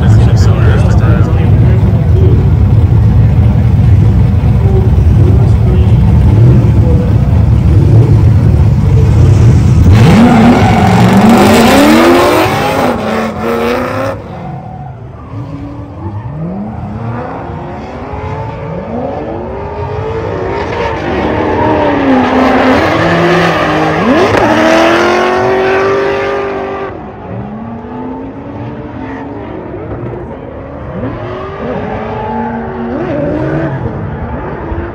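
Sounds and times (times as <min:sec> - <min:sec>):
car engines revving: 0:00.0 - 0:34.9
tire squeal: 0:09.8 - 0:18.8.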